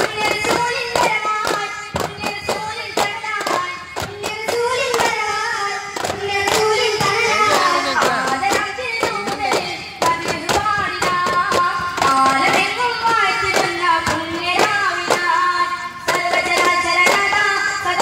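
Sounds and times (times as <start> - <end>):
frame drums struck in rhythm: 0.0 - 18.0
person singing: 6.5 - 11.4.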